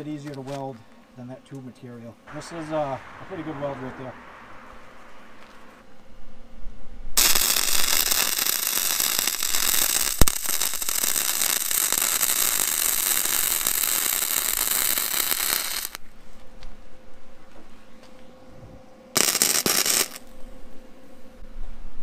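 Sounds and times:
welding arc crackling: 7.2s - 16.0s, 19.2s - 20.3s.

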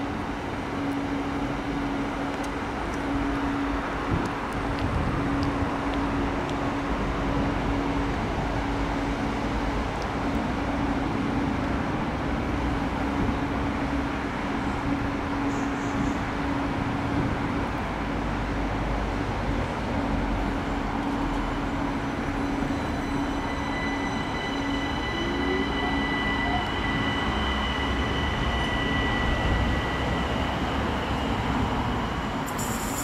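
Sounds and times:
train rumbling on track: 0.0s - 33.0s
high thin whining tones: 22.3s - 33.0s.

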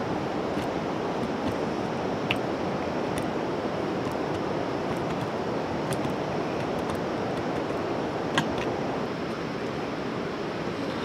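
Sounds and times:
steady rushing outdoor noise: 0.0s - 11.0s
hoe striking dry soil: 0.5s - 2.5s, 4.0s - 8.7s.

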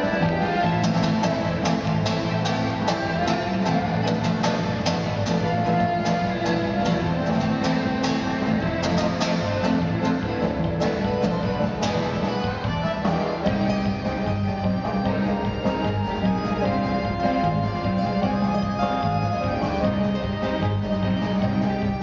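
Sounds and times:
bowed upright bass: 0.0s - 22.0s
button accordion: 0.0s - 22.0s
plucked classical guitar: 0.0s - 22.0s.

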